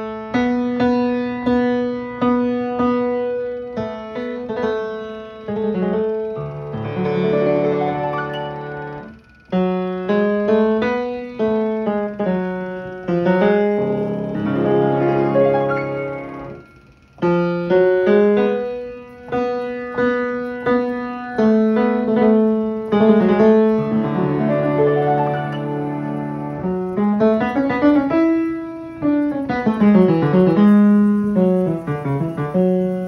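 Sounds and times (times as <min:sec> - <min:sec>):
player piano playing chords: 0:00.0 - 0:33.0.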